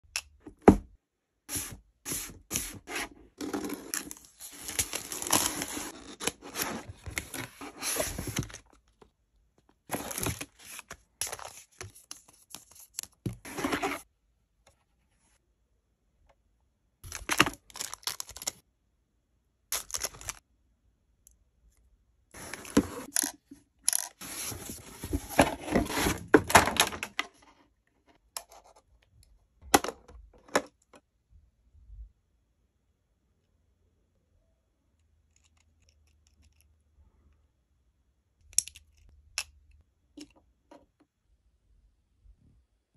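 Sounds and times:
cardboard box handling: 0:01.6 - 0:08.6, 0:09.9 - 0:11.7, 0:13.3 - 0:14.0, 0:24.2 - 0:27.0.

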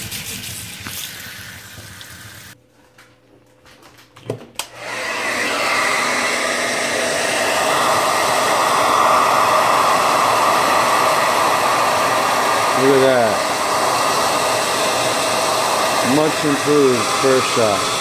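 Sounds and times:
running water: 0:00.0 - 0:02.6
hair dryer blowing: 0:04.6 - 0:18.0.

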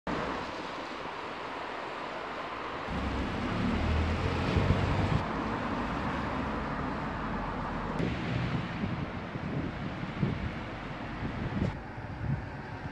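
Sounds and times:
wind buffeting microphone: 0:02.9 - 0:05.4, 0:08.0 - 0:12.9.

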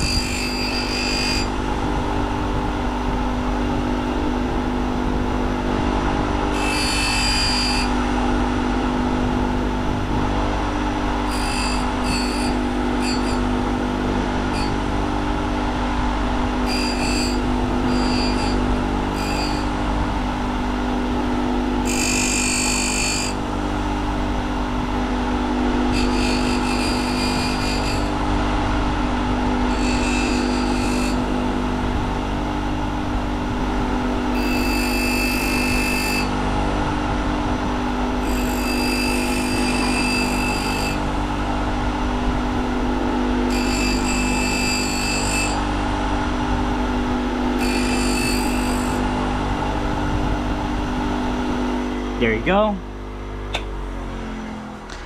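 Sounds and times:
high-pitched grinding: 0:00.0 - 0:01.6, 0:06.5 - 0:08.1, 0:11.2 - 0:15.0, 0:16.6 - 0:19.8, 0:21.8 - 0:23.5, 0:25.9 - 0:28.2, 0:29.6 - 0:31.4, 0:34.3 - 0:36.3, 0:38.2 - 0:41.2, 0:43.5 - 0:45.7, 0:47.6 - 0:49.2
small power tool running: 0:00.0 - 0:52.0.

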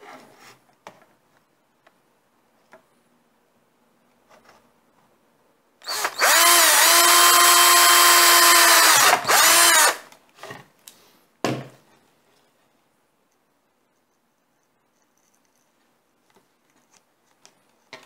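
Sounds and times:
drill boring through plastic: 0:05.8 - 0:10.1.

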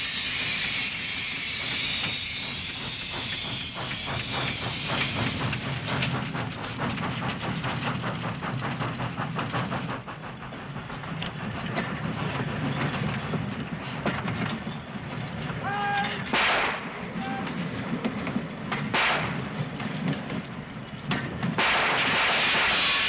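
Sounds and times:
train wheels clattering on rails: 0:00.0 - 0:23.0.

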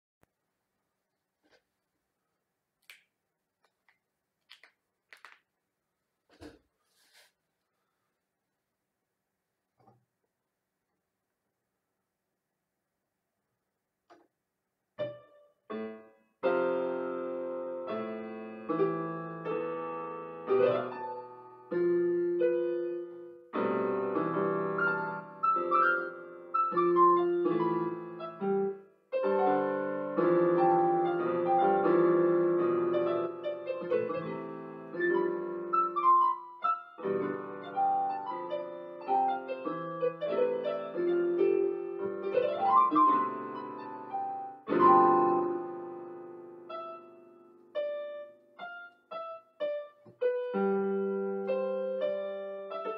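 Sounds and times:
electronic keyboard piano piece: 0:15.0 - 0:52.9.

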